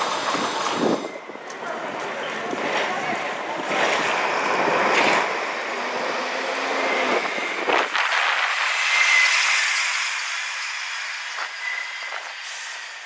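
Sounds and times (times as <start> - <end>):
bus engine and road noise: 0.0 - 13.0
high whine: 5.4 - 13.0.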